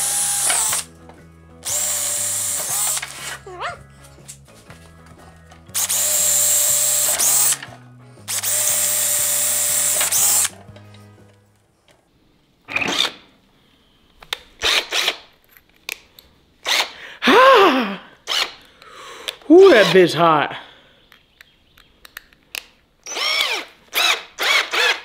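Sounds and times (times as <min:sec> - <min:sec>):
power drill boring into wood: 0:00.0 - 0:00.9, 0:01.6 - 0:03.4, 0:05.7 - 0:07.7, 0:08.3 - 0:10.6, 0:14.6 - 0:15.2, 0:16.6 - 0:17.0, 0:18.3 - 0:18.6, 0:23.0 - 0:25.0.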